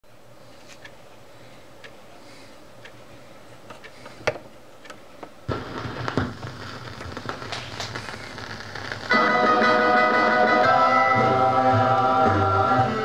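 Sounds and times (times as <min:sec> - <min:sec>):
record crackle: 0:04.8 - 0:11.6.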